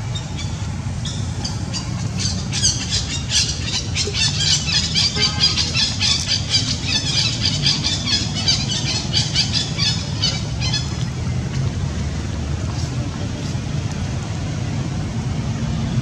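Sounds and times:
low engine-like rumble: 0.0 - 16.0.

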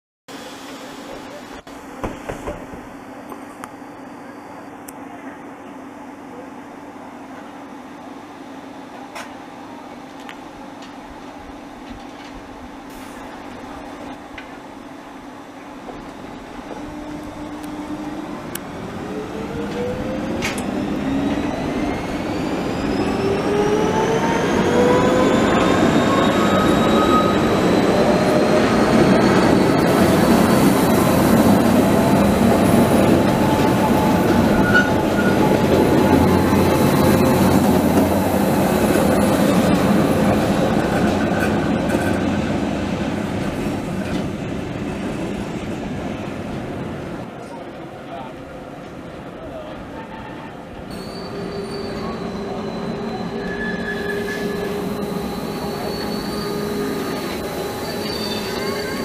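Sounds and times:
train cars rumbling on track: 8.9 - 59.0
electric train motors whining: 50.9 - 59.0.

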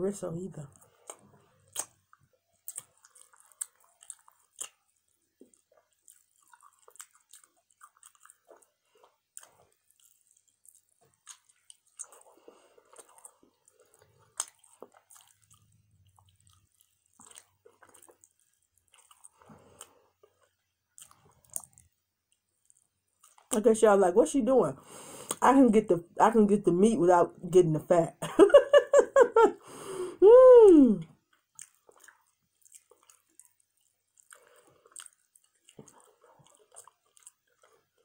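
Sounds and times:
chewing and biting ribs: 0.7 - 23.6, 31.3 - 38.0
wet mouth clicks: 1.0 - 4.8.

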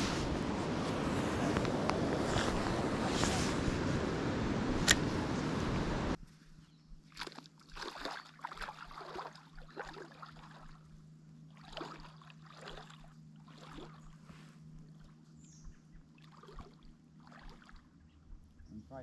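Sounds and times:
low hum: 0.0 - 7.9, 8.6 - 19.0
water sloshing and trickling: 7.0 - 18.7.

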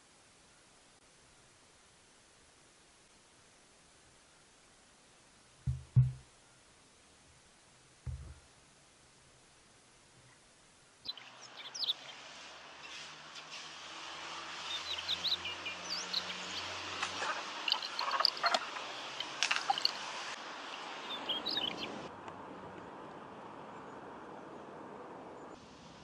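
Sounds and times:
small birds chirping: 11.0 - 13.1, 14.5 - 22.1.

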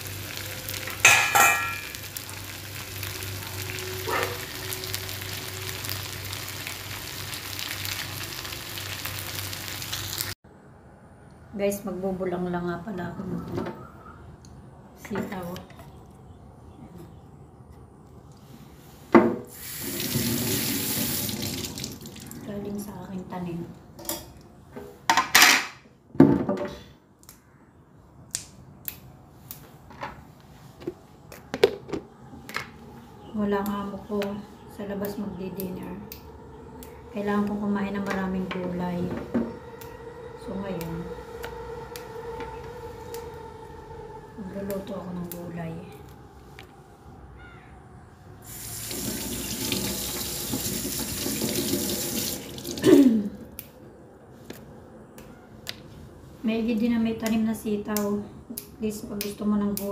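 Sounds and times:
beans snapping: 28.3 - 29.7.

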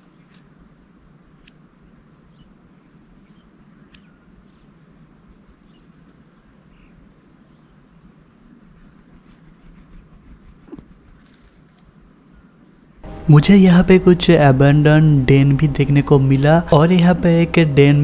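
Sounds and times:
distant bird chirps: 0.0 - 13.3
low hiss: 0.0 - 18.0
steady high-pitched hum: 0.0 - 18.0.

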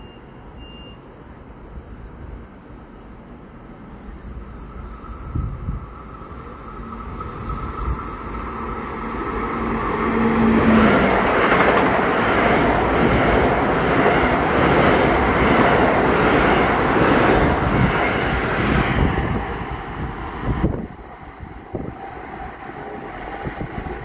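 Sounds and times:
train wheels rumbling on rails: 4.2 - 24.0.

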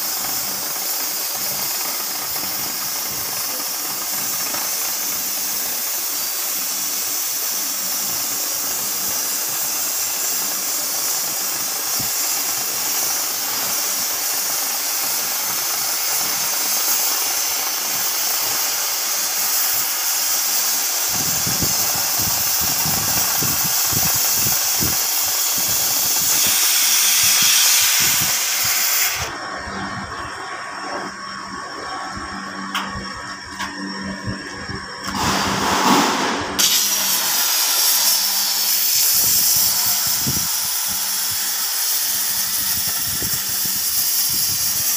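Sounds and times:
cutting torch hissing: 0.0 - 44.9
low rumbling noise: 29.3 - 36.6.

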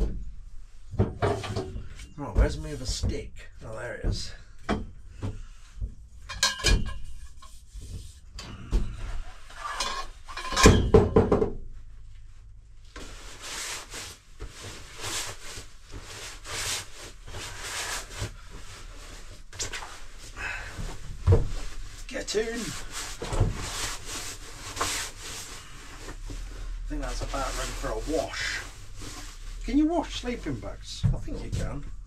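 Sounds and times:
camp bed frame clattering: 0.9 - 5.0, 6.2 - 7.5, 8.4 - 11.5
fabric rustling: 12.2 - 32.0.

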